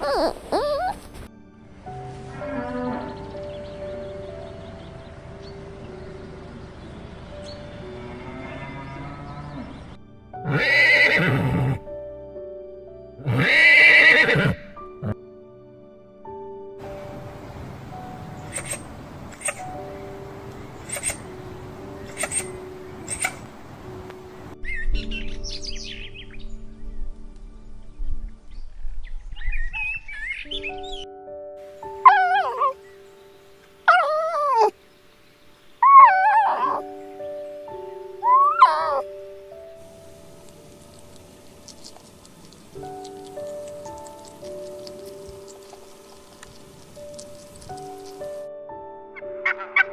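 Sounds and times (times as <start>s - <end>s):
horse whinnying: 0.0s - 1.0s, 10.4s - 11.8s, 13.2s - 15.2s, 38.2s - 39.0s
fox whining yelps: 0.0s - 1.2s, 18.5s - 19.7s, 20.8s - 21.3s, 22.0s - 23.5s, 32.0s - 32.8s, 33.8s - 34.8s, 35.8s - 36.9s, 38.2s - 39.1s
soft background music: 0.0s - 49.9s.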